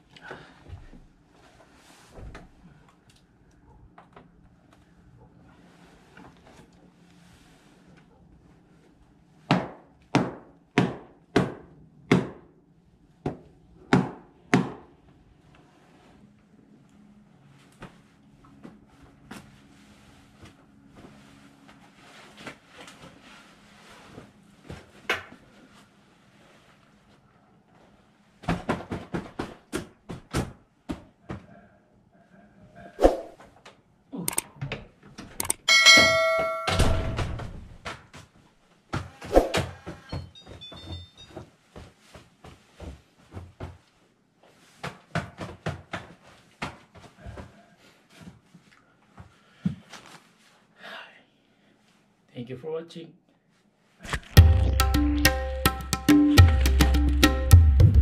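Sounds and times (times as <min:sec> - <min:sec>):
sharp clicks: 0:35.4 - 0:35.6
keypad door lock chime: 0:35.4 - 0:37.1.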